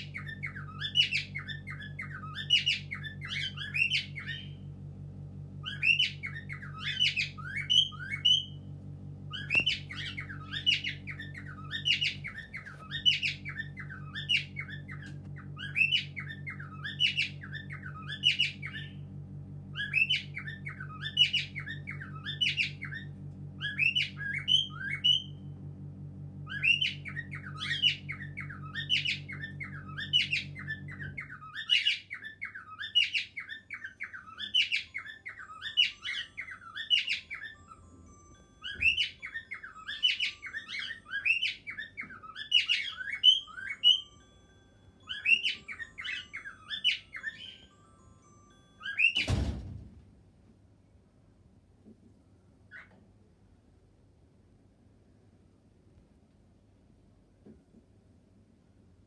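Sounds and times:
cockatiels chirping and squawking: 0:00.0 - 0:04.6, 0:05.6 - 0:08.6, 0:09.3 - 0:19.0, 0:19.7 - 0:25.4, 0:26.5 - 0:44.2, 0:45.0 - 0:48.0, 0:48.8 - 0:49.7, 0:52.7 - 0:53.0
steady low hum: 0:00.0 - 0:33.4.

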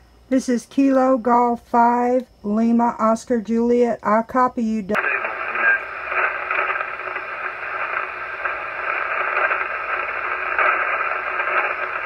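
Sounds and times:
radio receiver static hiss: 0:04.9 - 0:12.0.

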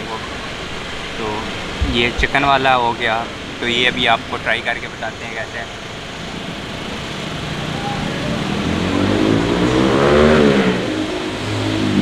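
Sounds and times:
another engine approaching: 0:01.2 - 0:04.7, 0:05.9 - 0:12.0
vehicle driving past: 0:07.4 - 0:12.0.

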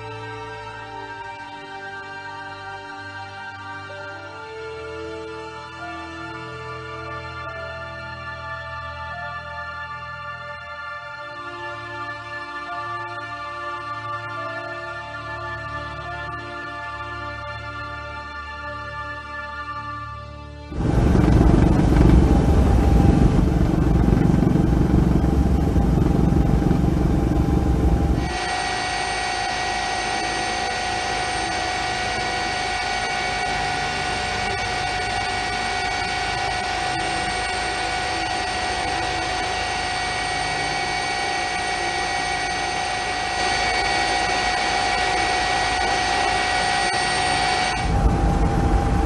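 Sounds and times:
helicopter rotor and engine drone: 0:20.7 - 0:49.0
high whine: 0:20.7 - 0:49.0.

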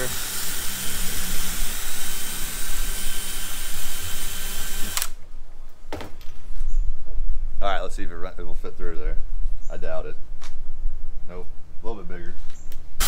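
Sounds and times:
cordless drill whirring through plastic: 0:00.0 - 0:05.2.

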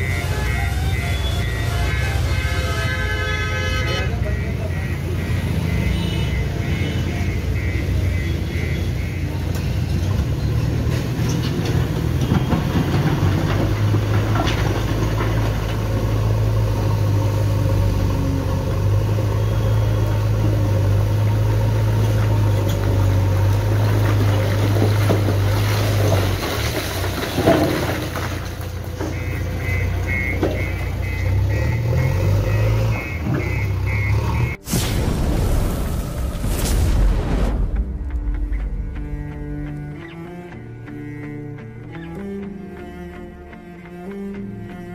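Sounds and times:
backhoe diesel engine under load: 0:00.0 - 0:34.7
bucket scooping stone rubble: 0:23.6 - 0:29.2.

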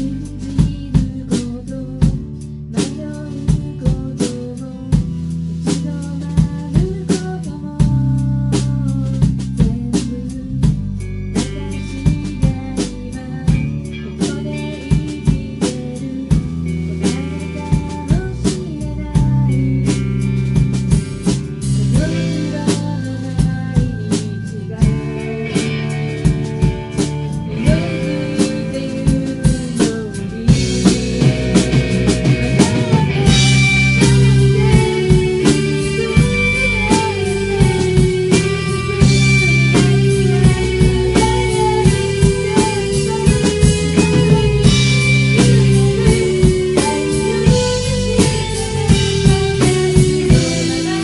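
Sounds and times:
guitars: 0:00.0 - 0:51.0
keyboard chords: 0:00.0 - 0:51.0
live pop-rock band: 0:00.0 - 0:51.0
drum beat: 0:19.2 - 0:24.2, 0:24.8 - 0:51.0.

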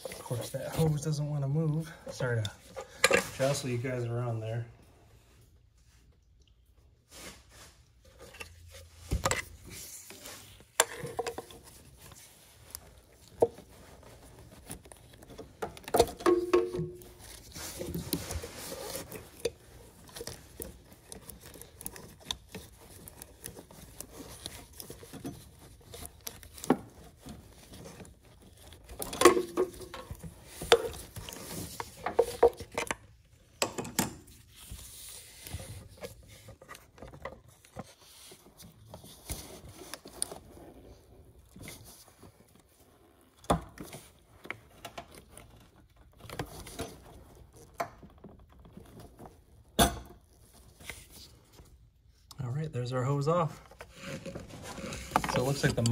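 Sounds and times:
rubber hose creaking and scraping: 0:00.0 - 0:55.9
glove rustle: 0:07.0 - 0:15.6, 0:16.3 - 0:33.4, 0:53.3 - 0:55.9.

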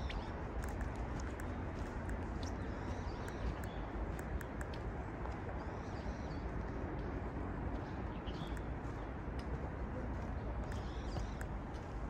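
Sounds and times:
small birds chirping: 0:00.0 - 0:04.8, 0:07.8 - 0:09.2, 0:10.3 - 0:12.0
footstep clicks on trail: 0:00.0 - 0:12.0.

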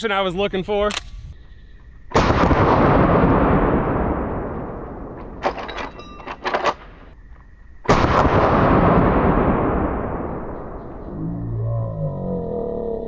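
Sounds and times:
rifle lever clicks and clacks: 0:00.9 - 0:01.2
rifle shot with rolling echo: 0:02.1 - 0:07.2, 0:07.9 - 0:11.1.

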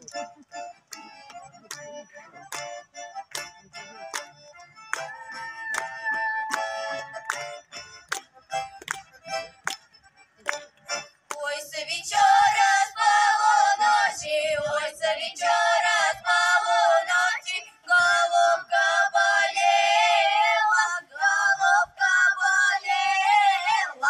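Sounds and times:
girls singing through pa: 0:11.3 - 0:24.0.

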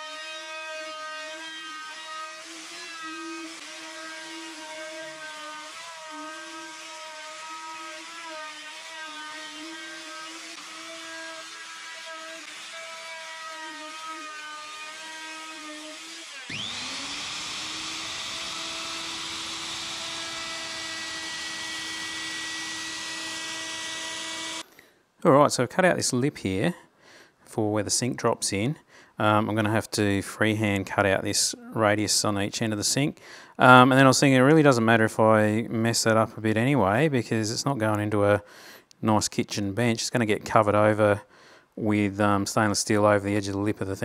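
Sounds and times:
router motor whining: 0:00.0 - 0:24.6.

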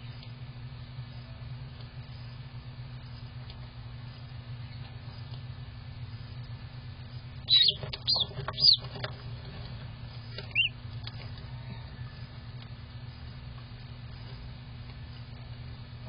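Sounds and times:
steady low hum: 0:00.0 - 0:16.0
duckling peeping: 0:07.4 - 0:09.0, 0:10.3 - 0:10.8.

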